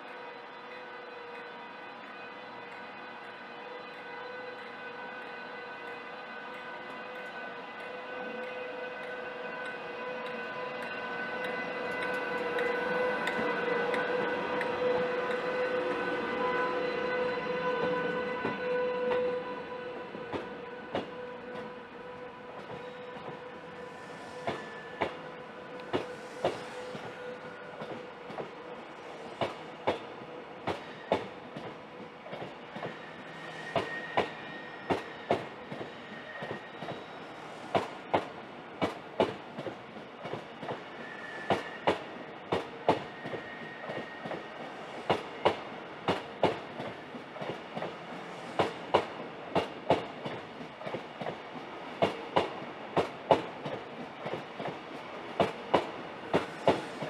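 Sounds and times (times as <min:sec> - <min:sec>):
faint high squeal: 0:22.8 - 0:27.9, 0:32.8 - 0:37.7, 0:40.6 - 0:42.2, 0:42.8 - 0:44.8
train wheels clicking over rail joints: 0:25.8 - 0:27.2, 0:45.0 - 0:57.0.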